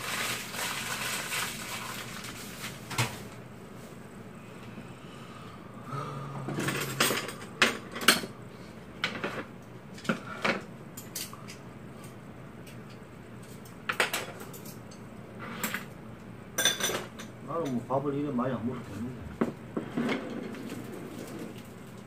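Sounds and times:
dishes and utensils clinking: 6.5 - 8.3.

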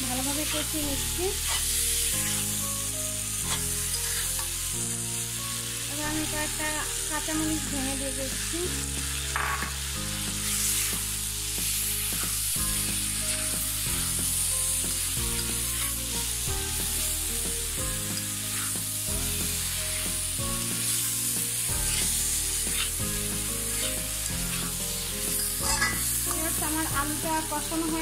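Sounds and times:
background music with chords: 0.0 - 28.0
food sizzling in oil: 0.0 - 28.0
spatula scraping pan: 0.2 - 2.5, 3.4 - 4.7, 14.8 - 16.6, 18.1 - 26.5.

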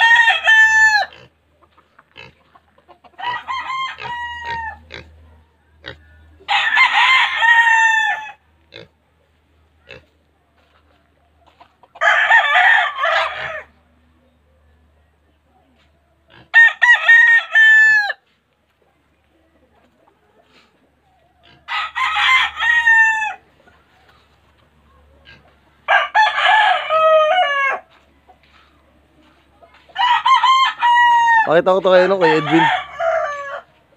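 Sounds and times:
roosters crowing: 0.0 - 1.4, 2.1 - 8.9, 11.6 - 13.8, 16.3 - 18.2, 21.2 - 28.7, 29.7 - 33.9.

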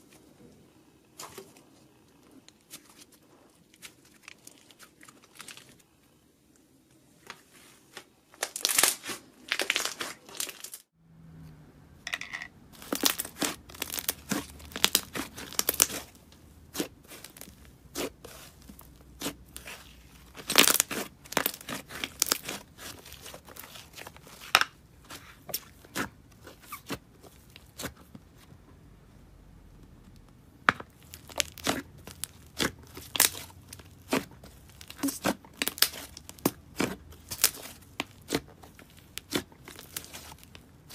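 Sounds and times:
slime crackling and popping: 12.8 - 28.0, 30.8 - 40.9.

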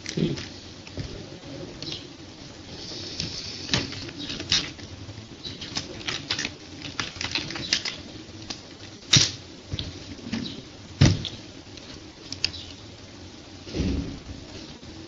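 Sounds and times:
computer keyboard typing: 3.2 - 9.4.

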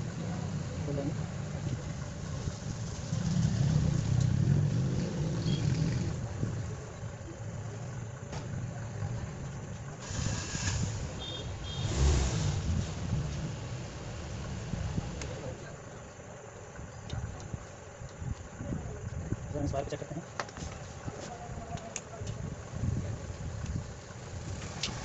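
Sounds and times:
low engine rumble: 0.0 - 25.0
hissing rustles: 10.0 - 15.5.

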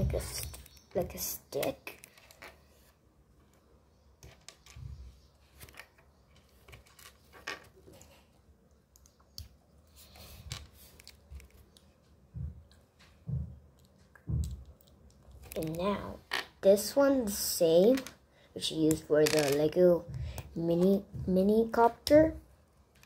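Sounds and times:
soft thumps: 12.3 - 14.6.

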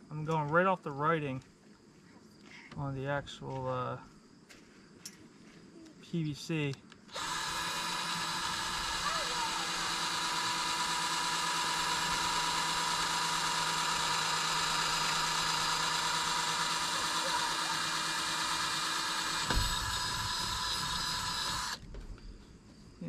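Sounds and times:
cordless drill boring plastic pipe: 7.1 - 21.9.

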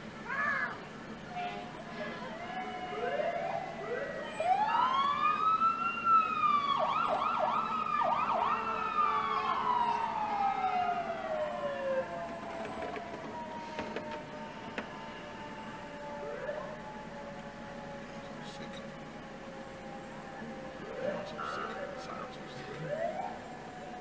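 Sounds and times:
emergency sirens wailing: 0.0 - 24.0.

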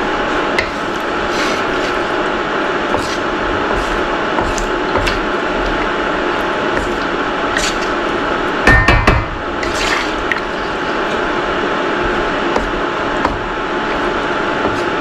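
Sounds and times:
liquid sloshing in a wok: 0.2 - 8.6, 9.5 - 11.4
spatula knocking against wok: 8.7 - 9.4.

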